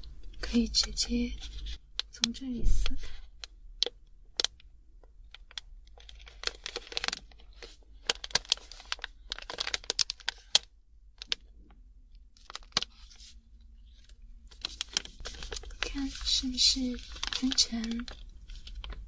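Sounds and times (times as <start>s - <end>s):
plastic pouch tearing and crinkling: 5.3s - 11.5s, 12.4s - 13.3s, 13.9s - 19.0s.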